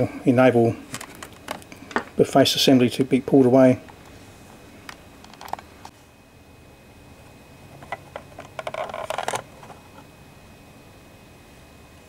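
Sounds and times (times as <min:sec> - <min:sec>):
plastic clicking and scraping: 0:04.9 - 0:05.6, 0:07.8 - 0:10.0.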